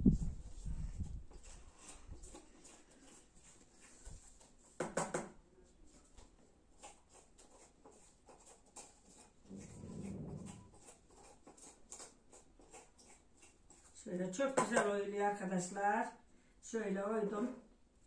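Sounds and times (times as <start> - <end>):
knife scraping vegetable flesh: 1.0 - 4.8, 6.7 - 14.9.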